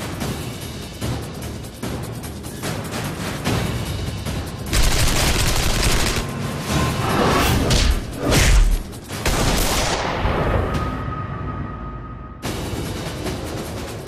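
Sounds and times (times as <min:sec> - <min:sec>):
dramatic music: 0:00.0 - 0:14.0
gunfire bursts: 0:04.7 - 0:06.3.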